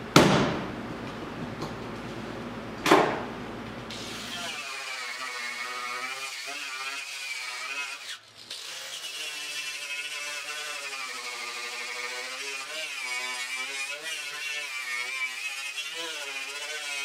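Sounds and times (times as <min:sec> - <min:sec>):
power tool grinding metal: 0:03.9 - 0:17.0.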